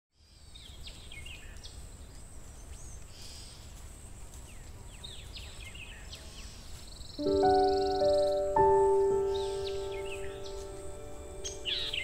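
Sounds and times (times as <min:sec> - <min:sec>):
small birds chirping: 0:00.2 - 0:12.0
faint high hiss: 0:06.5 - 0:12.0.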